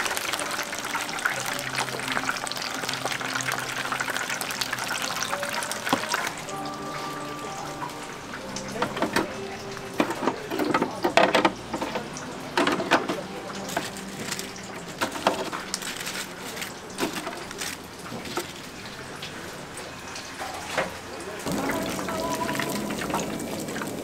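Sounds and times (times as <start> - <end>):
utensils and dishes clattering: 0.0 - 18.7.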